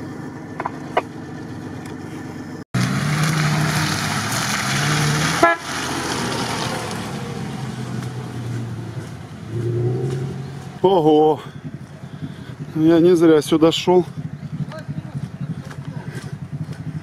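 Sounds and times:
off-road vehicle engine running: 0.0 - 17.0
short horn toot: 5.3 - 5.8.

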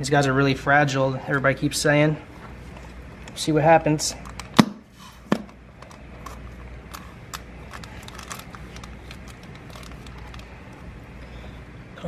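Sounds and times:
plastic bag crinkling: 5.9 - 11.0.

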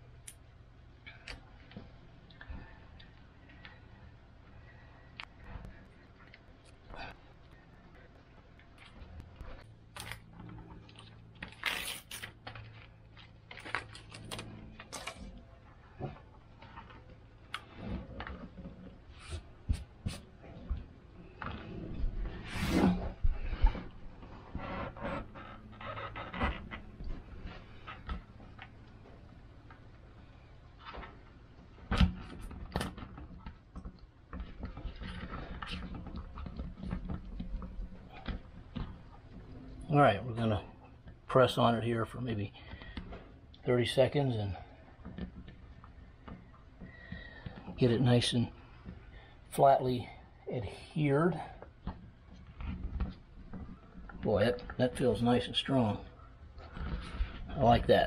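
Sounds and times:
low steady hum: 0.0 - 58.0
plastic crinkling and clicking: 8.6 - 19.1.

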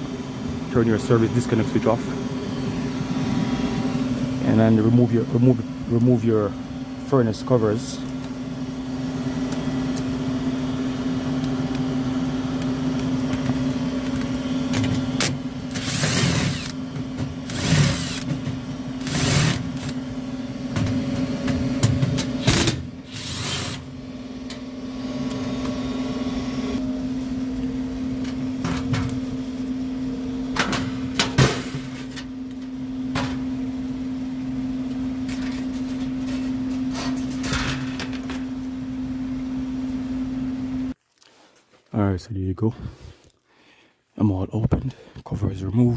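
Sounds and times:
steady low hum: 0.0 - 41.0
cordless driver whirring: 14.8 - 18.4, 19.0 - 20.0, 22.4 - 23.8.

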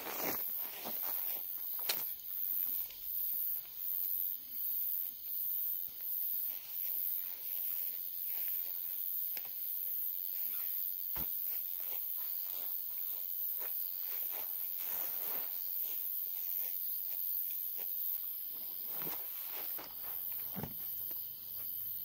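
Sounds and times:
high-pitched insect chorus: 0.0 - 22.0
heavy thump: 20.5 - 20.9.

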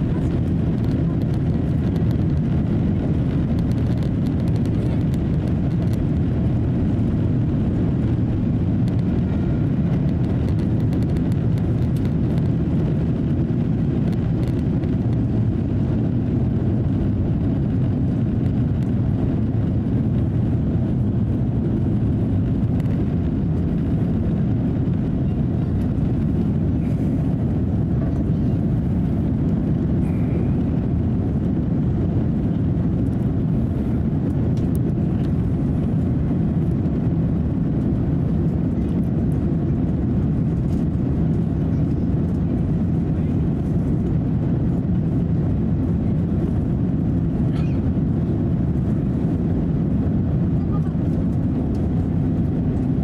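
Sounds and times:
airflow rushing: 0.0 - 37.6
jet engines roaring: 0.0 - 53.0.

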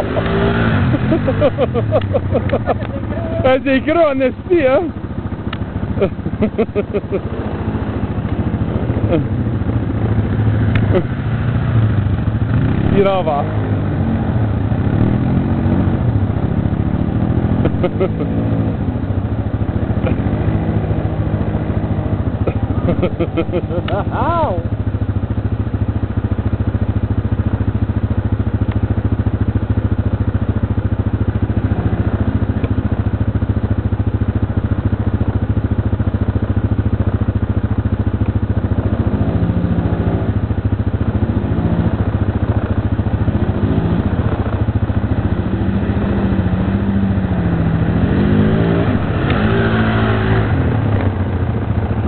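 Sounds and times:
atv engine revving: 0.0 - 52.0
low engine hum: 0.0 - 52.0
wheels spinning in mud: 28.8 - 52.0.

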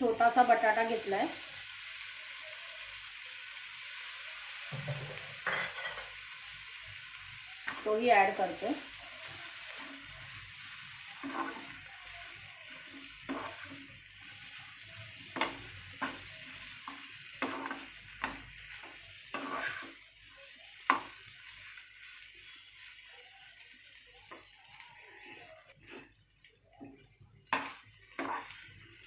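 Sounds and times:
hot oil sizzling: 0.0 - 29.0
spoon scraping a pan: 4.6 - 6.3, 7.6 - 22.8, 24.2 - 26.2, 26.8 - 29.0.

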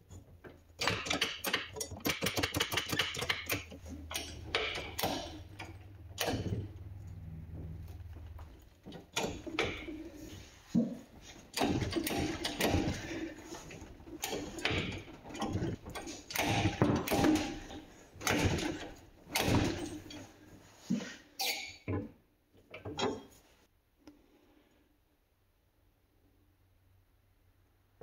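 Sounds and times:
tool bursts on rivets: 0.8 - 6.6.

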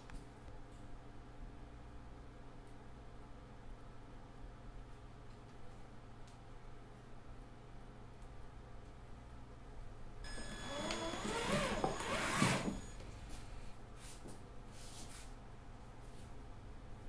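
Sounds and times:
wavering creak: 10.3 - 13.0.

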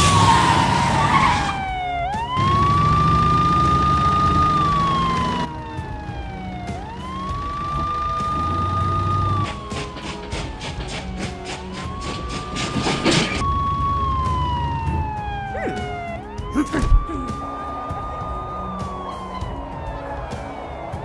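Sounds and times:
vehicle engine hum: 0.0 - 11.7
police siren wailing: 0.0 - 21.0.

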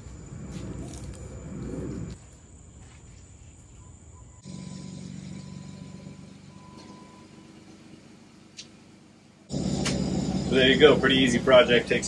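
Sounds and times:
car engine idling: 4.4 - 12.0.

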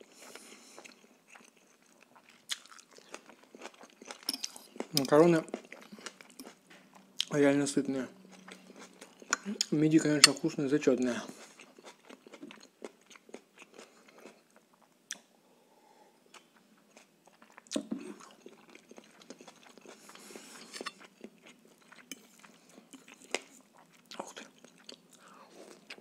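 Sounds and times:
wet chewing: 0.2 - 7.3, 11.3 - 15.3, 16.3 - 26.0.

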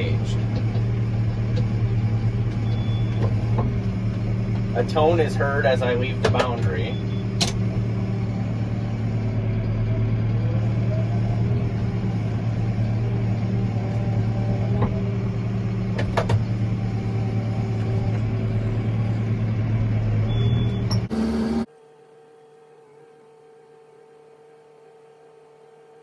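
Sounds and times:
tractor engine running: 0.0 - 21.7
faint high beep: 20.3 - 21.0.

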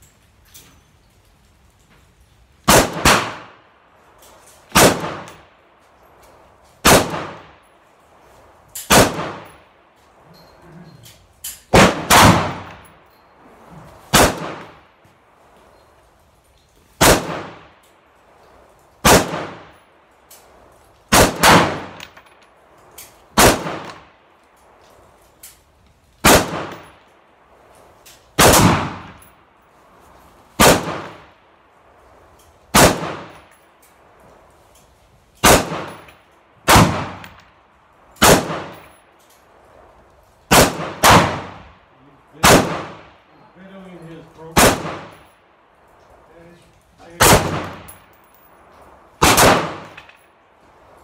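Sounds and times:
rifle single shots echoing: 2.6 - 3.7, 4.7 - 5.5, 6.8 - 7.6, 8.8 - 9.6, 11.7 - 12.9, 14.1 - 14.9, 17.0 - 17.8, 19.0 - 19.8, 20.5 - 22.4, 23.4 - 24.2, 26.2 - 27.1, 28.4 - 29.3, 30.6 - 31.4, 32.7 - 33.6, 35.4 - 37.6, 38.2 - 39.0, 40.5 - 43.3, 44.2 - 45.3, 47.2 - 48.2, 49.2 - 50.3.

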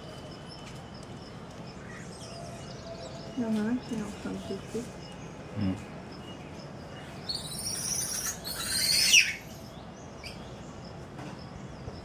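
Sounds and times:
animal screech: 7.3 - 9.6.

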